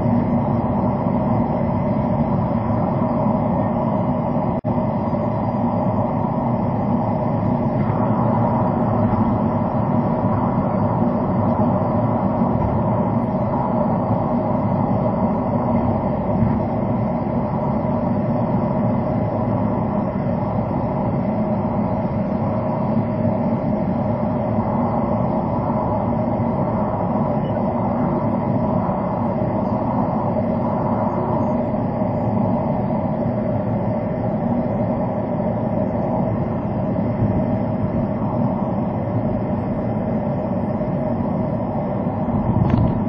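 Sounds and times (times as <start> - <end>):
car road and engine noise: 0.0 - 43.0.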